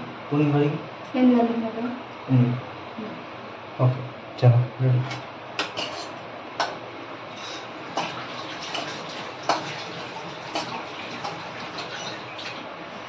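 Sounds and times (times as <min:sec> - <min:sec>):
hands washing under water: 0:07.4 - 0:12.6
tap water running into metal sink: 0:07.9 - 0:12.6.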